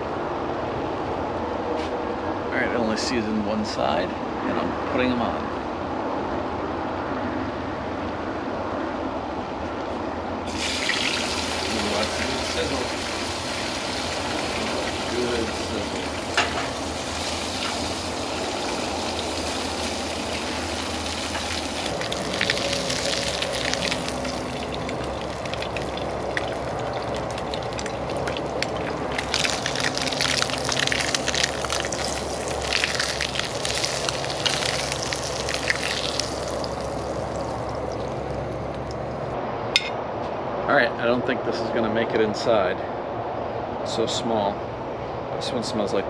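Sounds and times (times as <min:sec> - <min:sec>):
fish sizzling in oil: 0:10.5 - 0:38.2
oil crackling and popping: 0:10.5 - 0:39.0.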